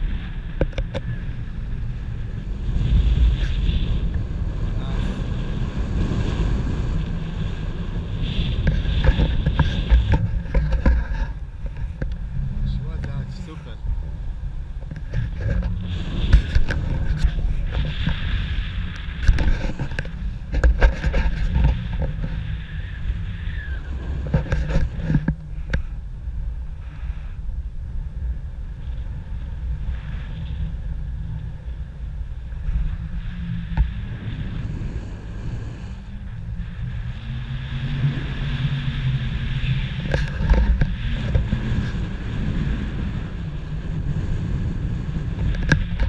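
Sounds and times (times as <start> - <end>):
wind buffeting microphone: 0.0 - 46.0.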